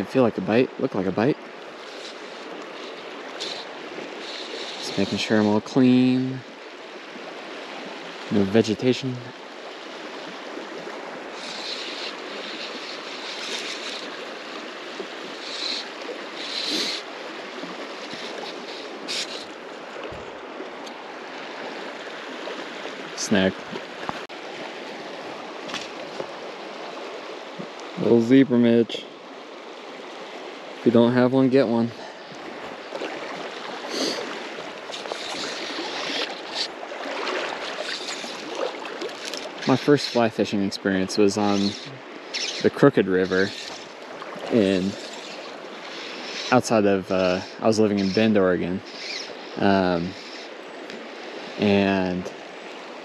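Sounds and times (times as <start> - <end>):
river water rushing: 0.7 - 8.7, 9.3 - 28.2, 31.7 - 53.0
higher water swishes: 29.1 - 50.3.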